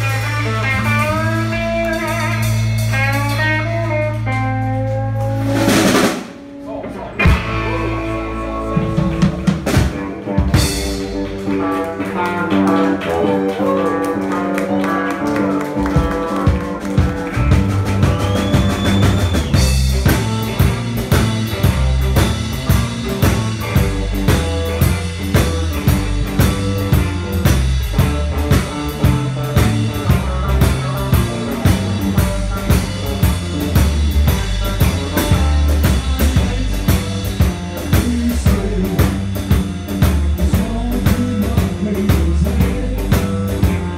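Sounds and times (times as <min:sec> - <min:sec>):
bass: 0:00.0 - 0:43.9
drums: 0:00.0 - 0:43.9
electric guitar lines: 0:00.0 - 0:43.9.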